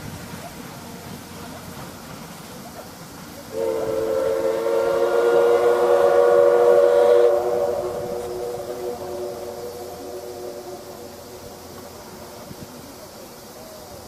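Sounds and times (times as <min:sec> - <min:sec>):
steam locomotive whistle: 0:03.5 - 0:11.6.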